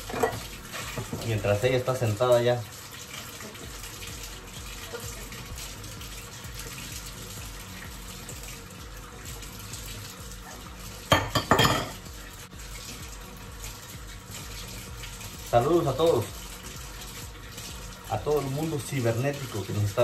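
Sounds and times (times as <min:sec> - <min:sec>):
dishes clattering: 0:00.0 - 0:01.3, 0:11.1 - 0:12.0
faucet running into sink: 0:00.0 - 0:20.0.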